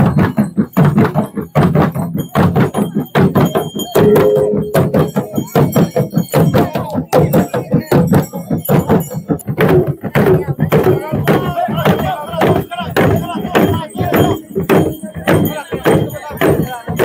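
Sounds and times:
barrel drums beating: 0.0s - 17.0s
cymbal ringing: 3.8s - 6.3s.

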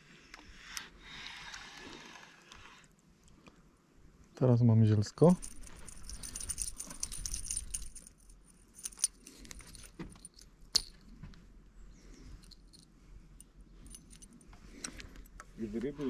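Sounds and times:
light metallic jingles: 5.0s - 11.2s, 11.8s - 16.0s.

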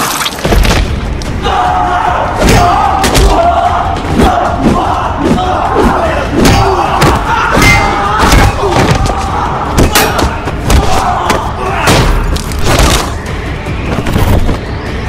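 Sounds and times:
fighters grunting and shouting: 1.4s - 12.4s.

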